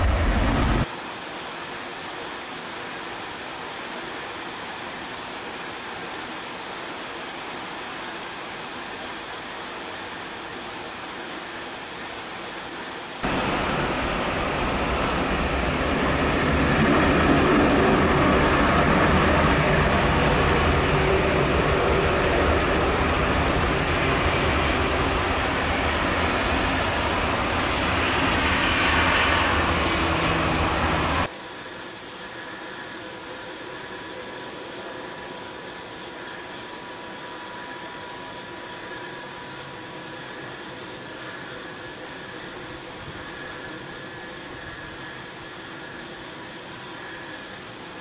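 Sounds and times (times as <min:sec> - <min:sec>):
jet engines rumbling: 0:00.0 - 0:00.9, 0:13.2 - 0:31.3
heavy rain hissing: 0:00.0 - 0:48.0.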